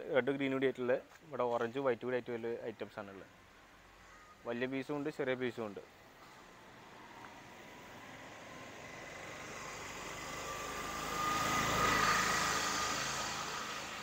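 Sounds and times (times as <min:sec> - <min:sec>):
vehicle passing by: 0:06.6 - 0:14.0.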